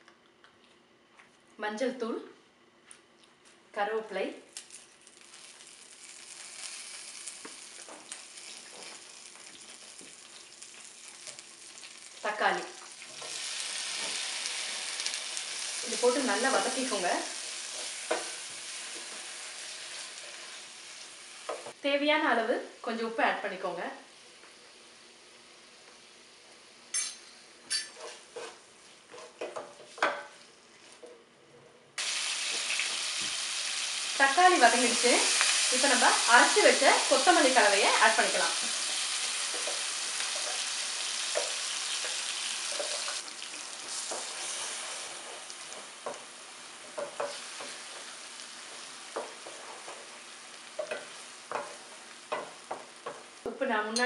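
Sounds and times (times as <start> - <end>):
leaves sizzling in hot oil: 4.5 - 21.8, 32.0 - 53.5
wooden spoon scraping and knocking: 27.8 - 30.2
wooden spoon scraping a pan: 27.9 - 31.1, 43.8 - 53.3.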